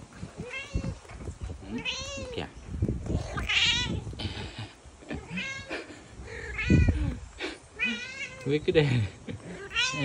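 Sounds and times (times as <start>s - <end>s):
cat meowing: 0.4s - 1.0s, 1.7s - 2.4s, 3.2s - 4.0s, 5.2s - 5.7s, 6.5s - 7.1s, 7.8s - 8.5s, 9.6s - 10.0s.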